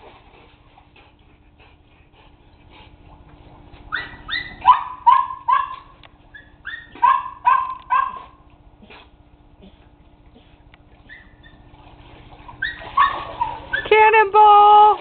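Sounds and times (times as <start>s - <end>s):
dog yipping and whining: 3.9s - 8.4s, 11.0s - 11.7s, 12.6s - 13.9s.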